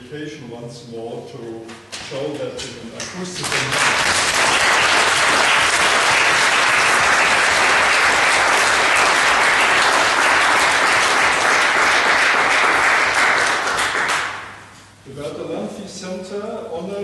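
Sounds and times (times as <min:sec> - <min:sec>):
audience applauding: 0:03.4 - 0:14.7.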